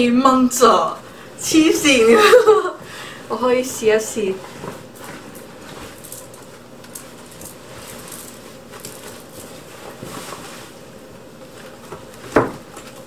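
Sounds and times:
denim jacket rustling: 3.8 - 12.3.

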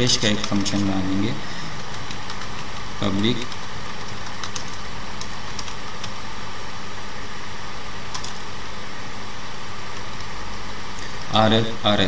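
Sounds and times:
background hiss and hum: 0.0 - 12.0
computer keyboard keystrokes: 0.2 - 0.9, 1.8 - 6.2, 8.1 - 8.4.

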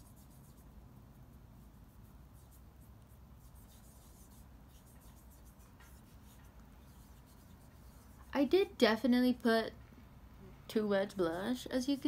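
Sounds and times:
scratchy rustles: 0.0 - 8.3
low steady hum: 0.0 - 12.0.

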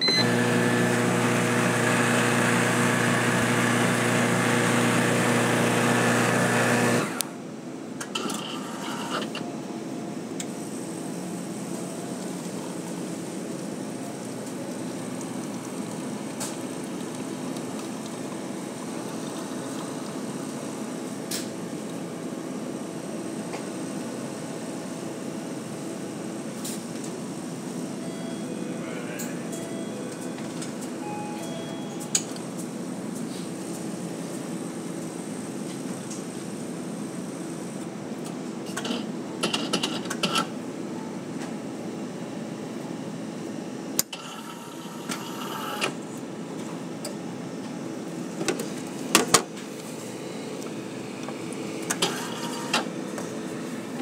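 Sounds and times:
coffee machine motor: 0.0 - 7.3, 51.2 - 54.0
quiet brewing hum: 9.4 - 54.0.

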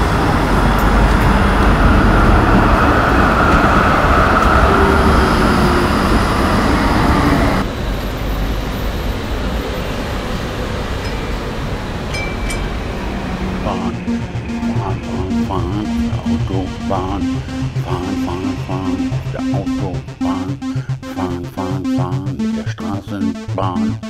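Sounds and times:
tram wheels rumbling on rails: 0.0 - 17.2.

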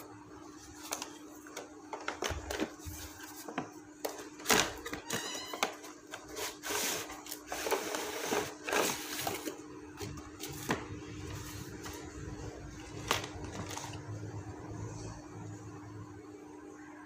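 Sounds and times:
cardboard scraping and rustling: 1.9 - 14.2.

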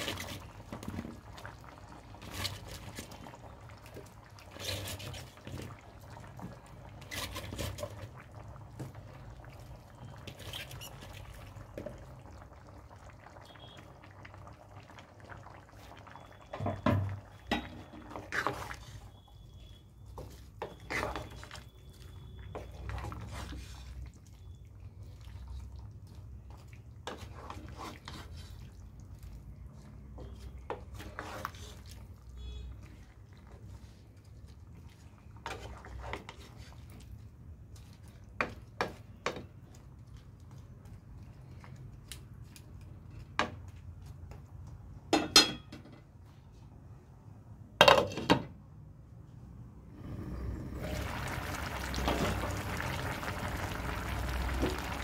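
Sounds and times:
wooden spatula stirring: 0.0 - 12.1, 17.6 - 44.7
curry bubbling in a frying pan: 0.0 - 42.7, 50.0 - 55.0.

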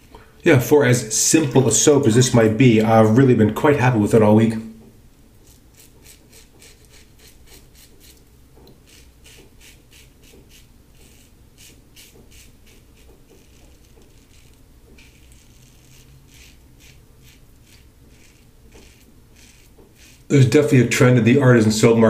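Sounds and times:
razor rasping through stubble: 5.4 - 20.4.

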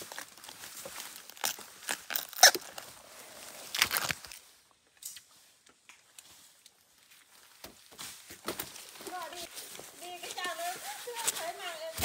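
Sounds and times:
rustling and crunching: 0.0 - 12.0.

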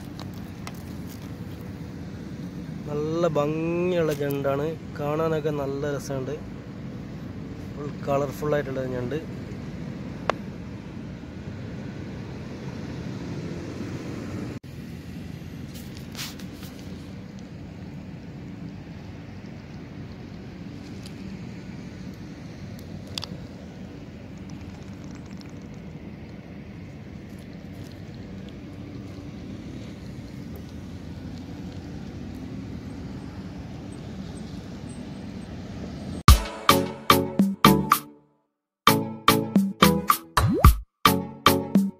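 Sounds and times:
low outdoor rumble: 0.0 - 36.3.

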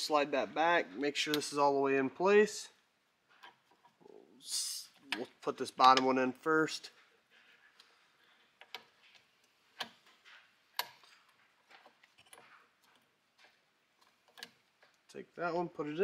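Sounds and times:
faint metallic clicks and taps: 3.3 - 4.1, 4.9 - 15.2.

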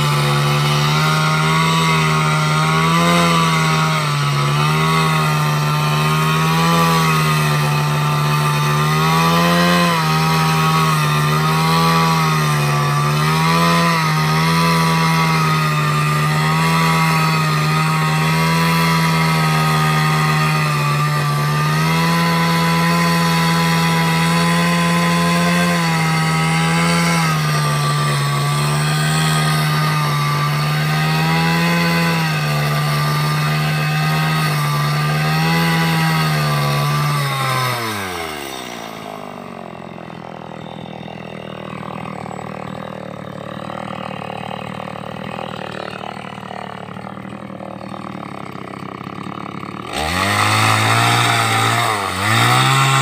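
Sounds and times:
chainsaw cutting wood: 0.0 - 53.0.

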